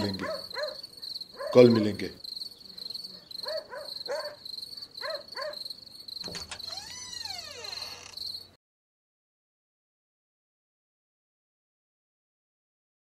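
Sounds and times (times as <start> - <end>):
dog barking: 0.0 - 2.0, 3.1 - 4.4, 5.0 - 5.7
crickets chirping: 0.0 - 8.6.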